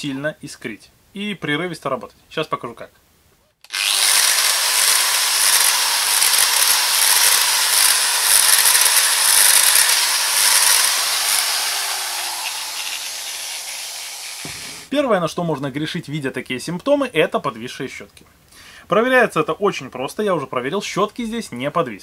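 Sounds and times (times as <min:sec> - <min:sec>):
angle grinder motor surging: 0:03.6 - 0:14.9.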